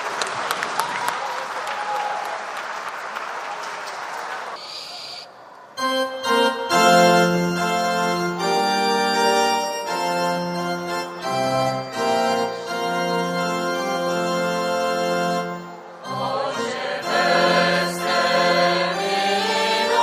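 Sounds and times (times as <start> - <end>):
mixed choir chanting: 15.9 - 20.0.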